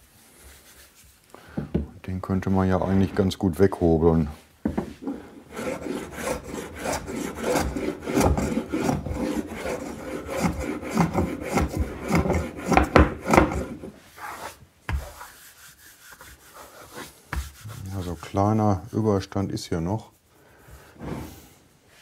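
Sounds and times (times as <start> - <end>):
hand plane shaving wood: 5.0 - 18.4.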